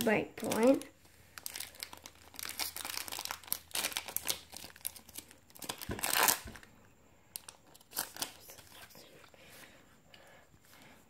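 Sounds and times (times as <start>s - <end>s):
foil wrapper crinkling: 0.0s - 9.0s
foil tearing: 1.4s - 6.6s.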